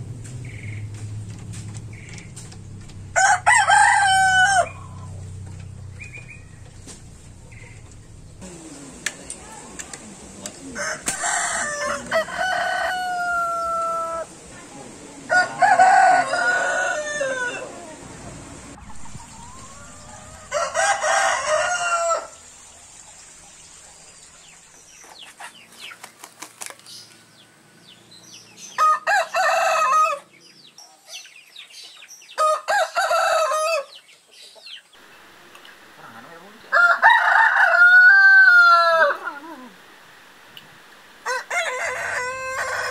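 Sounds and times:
rooster crowing: 3.1s - 5.2s, 10.6s - 14.3s, 15.3s - 18.1s, 18.8s - 22.5s, 28.7s - 30.3s, 32.4s - 33.9s, 36.6s - 39.4s, 41.2s - 42.9s.

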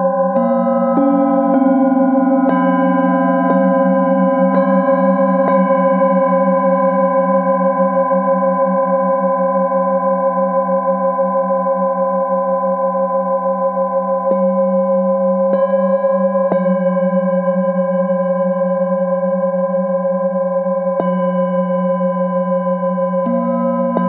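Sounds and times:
mallet striking bowls: 0.0s - 6.9s, 23.2s - 24.0s
low wavering hum: 0.0s - 8.7s
singing bowls ringing: 0.0s - 24.0s.

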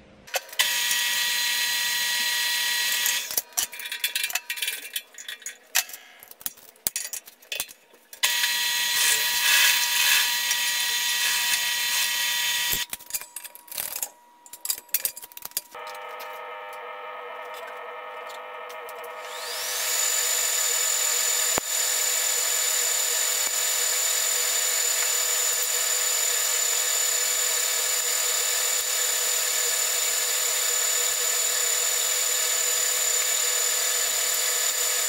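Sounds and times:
drill press cutting steel: 0.4s - 5.0s, 8.2s - 12.9s, 17.6s - 35.0s
handling clicks and clatter: 3.3s - 8.2s, 12.8s - 16.0s.

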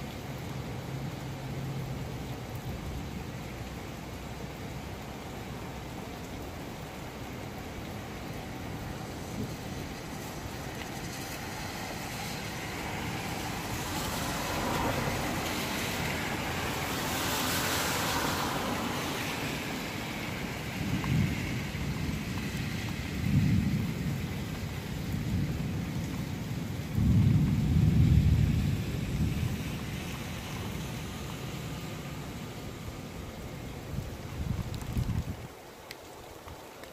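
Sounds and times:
steady rain: 0.0s - 36.9s
thunder rumbling: 20.4s - 30.9s.

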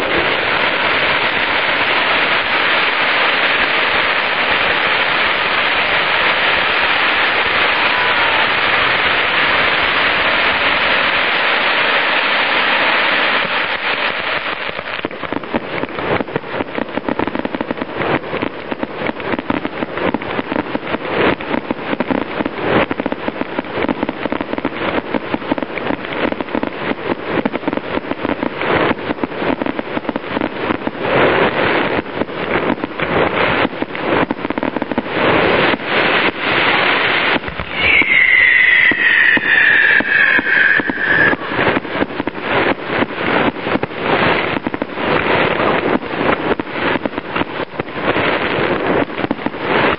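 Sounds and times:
firework fountain hissing: 0.0s - 49.9s
fireworks crackling and banging: 0.0s - 49.9s
falling firework whistle: 5.4s - 15.0s, 37.0s - 43.3s.

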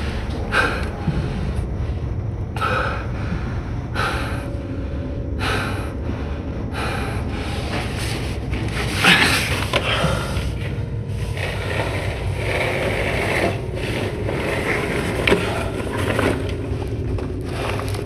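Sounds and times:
man breathing hard: 0.0s - 12.5s
low steady rumble: 0.0s - 18.0s.

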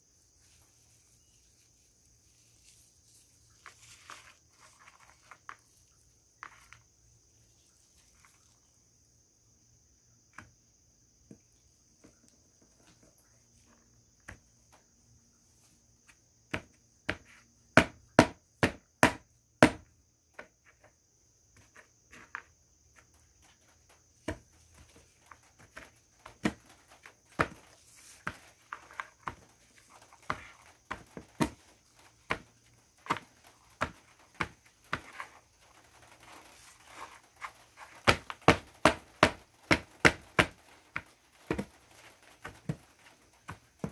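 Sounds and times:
mothballs cracking and crunching: 2.0s - 8.9s.

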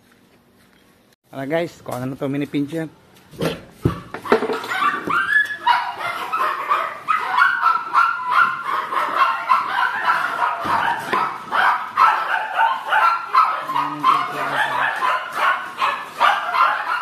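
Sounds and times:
puppies yipping and whining: 4.1s - 17.0s.

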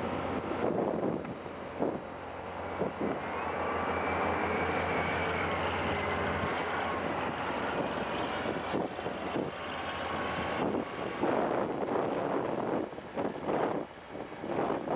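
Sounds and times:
diesel engine drone: 0.0s - 14.9s.

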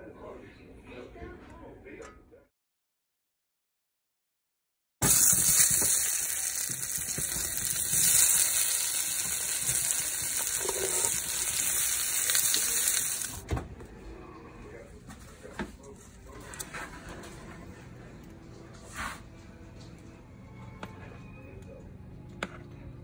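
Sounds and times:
potatoes sizzling in oil: 5.0s - 13.4s.

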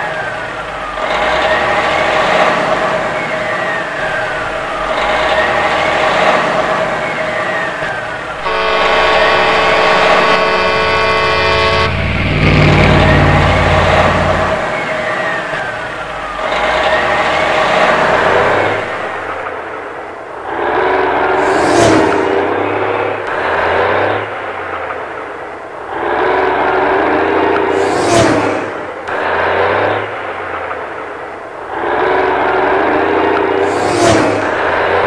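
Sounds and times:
road traffic noise: 0.0s - 35.0s
vehicle horn held: 8.4s - 14.7s.

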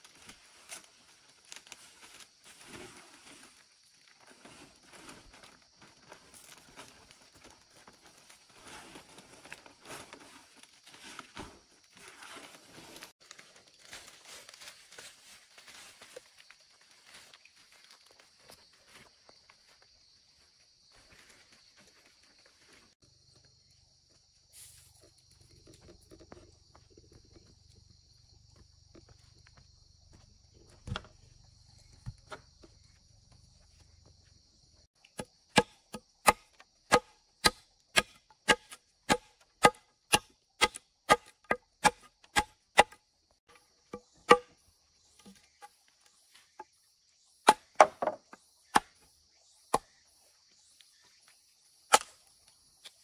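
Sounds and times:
blade chopping wood: 35.2s - 43.0s, 43.9s - 44.6s, 47.5s - 49.0s, 51.9s - 52.2s.

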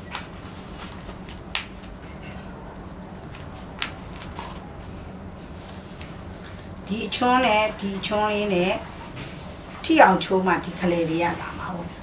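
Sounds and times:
paper rustling: 0.1s - 2.0s, 3.1s - 6.6s
sharp paper crackles: 3.2s - 4.7s.

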